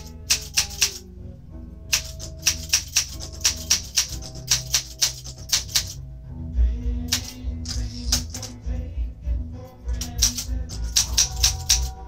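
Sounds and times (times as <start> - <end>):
typewriter keystrokes: 0.0 - 1.0, 1.9 - 6.0, 7.1 - 8.6, 9.9 - 12.0
music: 0.0 - 12.0.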